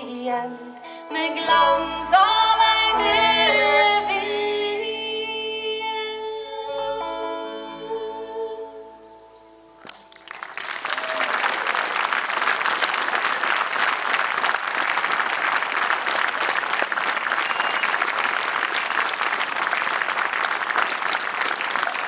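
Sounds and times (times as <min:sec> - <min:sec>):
audience applause: 0:09.8 - 0:22.0.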